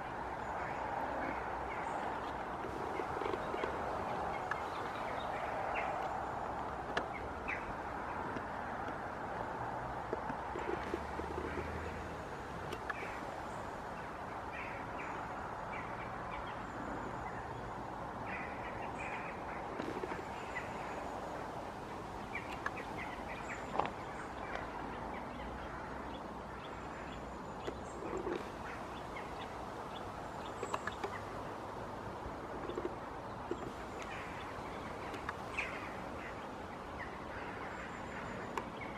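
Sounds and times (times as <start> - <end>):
steady rushing noise: 0.0 - 27.1
birds chirping: 0.0 - 38.9.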